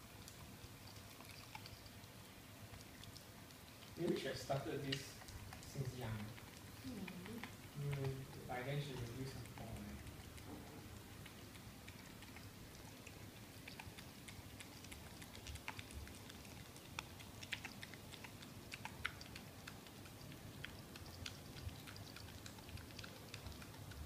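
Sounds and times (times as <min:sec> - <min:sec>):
dog gnawing bone: 0:00.0 - 0:24.0.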